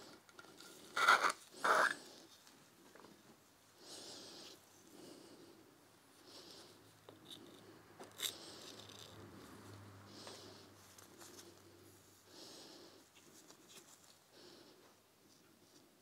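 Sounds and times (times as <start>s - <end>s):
soft rustles: 8.3s - 12.1s, 13.0s - 16.0s.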